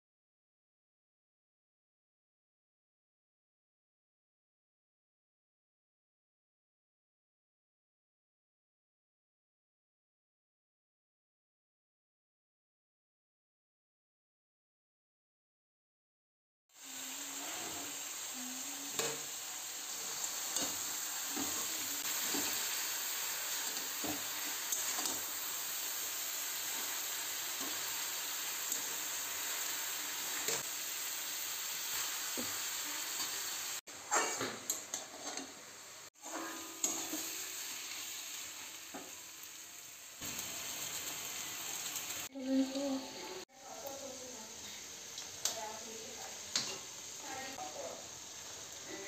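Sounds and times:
vegetables sizzling in a wok: 16.7s - 49.0s
metal spoon scraping pan: 34.1s - 35.6s, 36.2s - 37.4s.

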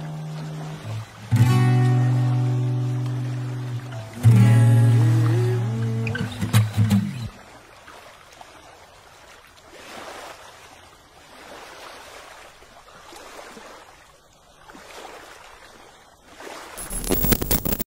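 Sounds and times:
sea waves washing in: 0.0s - 14.0s.

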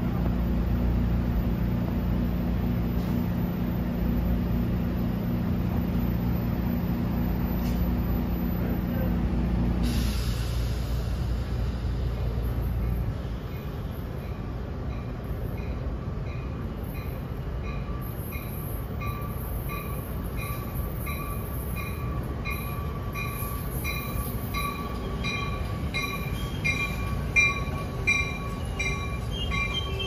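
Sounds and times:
electric train rumble and whine: 0.0s - 30.0s.

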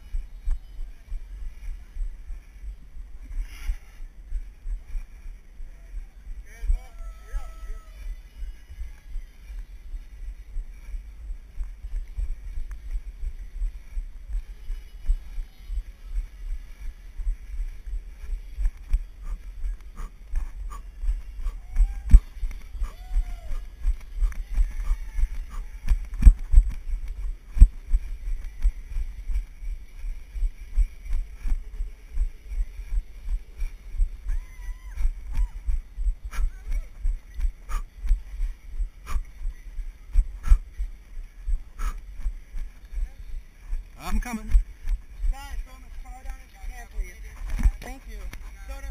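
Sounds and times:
camera microphone thumping rumble: 17.2s - 45.4s, 47.2s - 48.9s.

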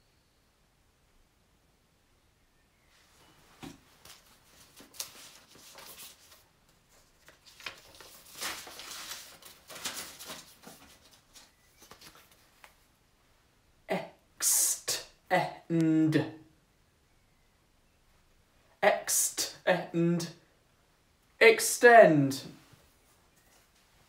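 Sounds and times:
paper cards rustling: 3.6s - 12.9s.

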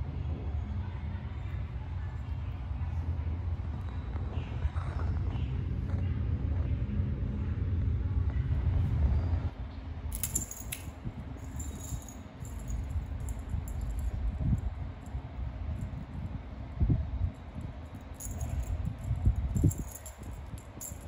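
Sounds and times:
metal toy jingling and clicking: 10.1s - 14.3s, 18.1s - 21.0s
low rumble: 10.1s - 21.0s.

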